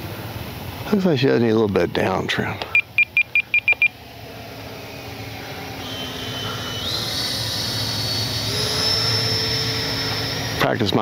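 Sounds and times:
electric ducted fan whining: 0.0 - 11.0
radio transmitter beeps: 2.7 - 4.0.

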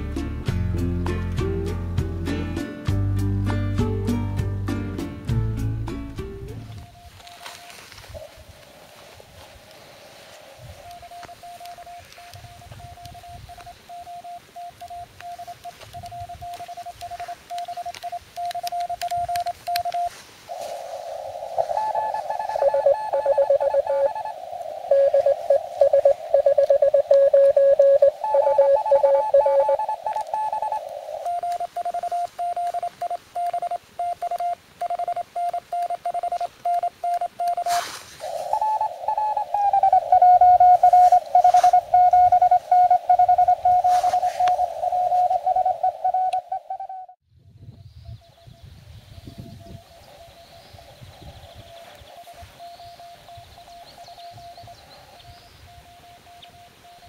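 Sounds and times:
morse code tones: 6.5 - 8.3, 10.6 - 20.8, 21.5 - 47.2, 55.6 - 57.0.

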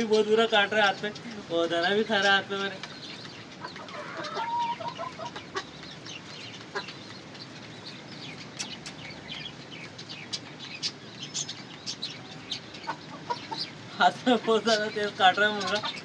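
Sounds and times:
sharp high ticks and chirps: 2.8 - 13.9
rooster clucking: 3.5 - 5.8, 12.6 - 16.0.

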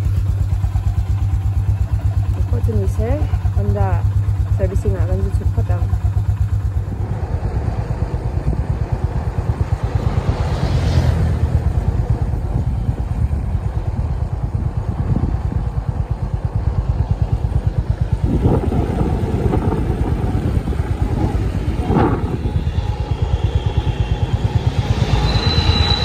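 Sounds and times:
motorcycle engine running: 0.0 - 26.0
wind rushing over microphone: 6.4 - 26.0.

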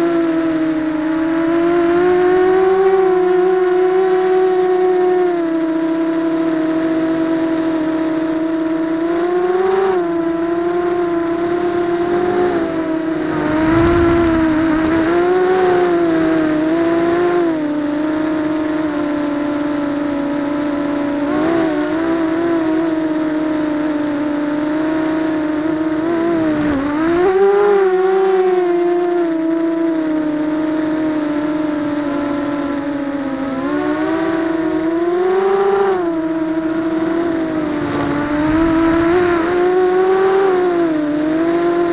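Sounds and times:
quadcopter motors whining: 0.0 - 41.9.

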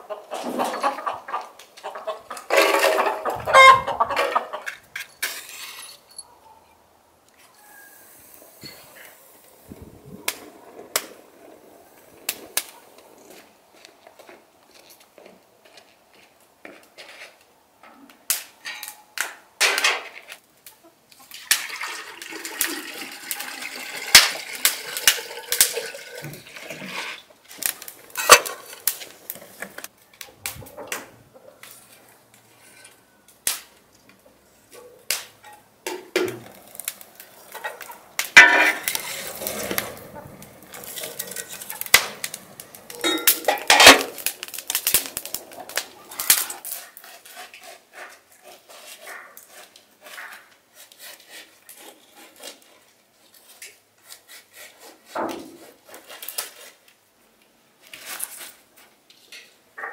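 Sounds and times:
wood fire crackling and popping: 8.6 - 14.7, 21.2 - 26.7, 27.4 - 31.0, 33.3 - 33.8, 35.0 - 47.4.

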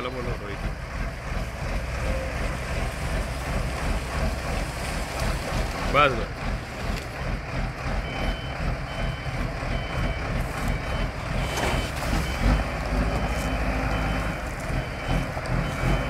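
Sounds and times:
diesel engine rumbling: 0.0 - 16.0
reversing alarm beeps: 8.0 - 16.0.

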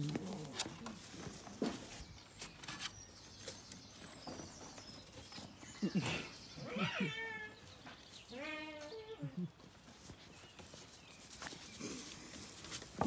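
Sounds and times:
light clicks and scuffles: 9.7 - 13.0.

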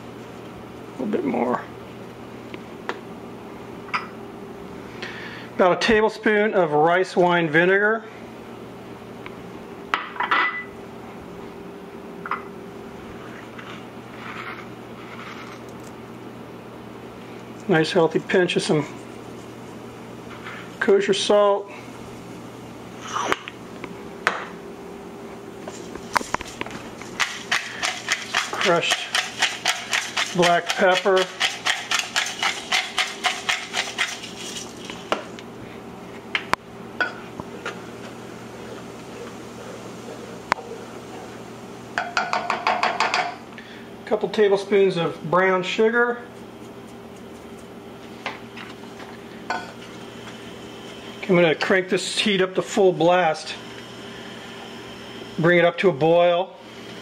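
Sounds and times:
low hum and hiss: 0.0 - 57.0
pepper mill grinding: 26.2 - 35.2.

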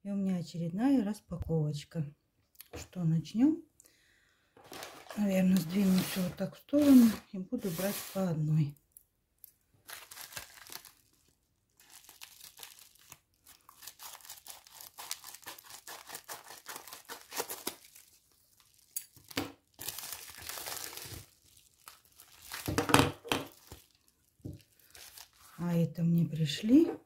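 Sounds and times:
plastic bag crinkling: 4.6 - 8.2, 9.8 - 26.0
scissors cutting plastic: 13.6 - 17.8.

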